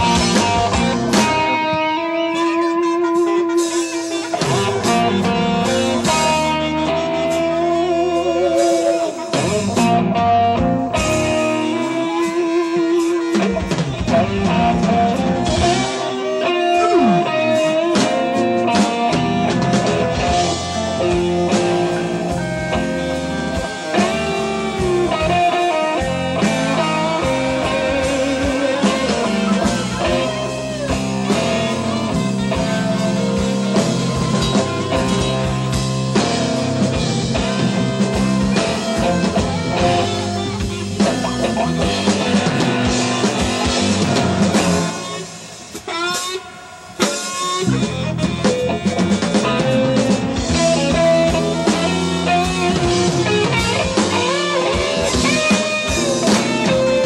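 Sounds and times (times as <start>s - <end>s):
blues band playing: 0.0s - 57.0s
harmonica wailing: 0.0s - 57.0s.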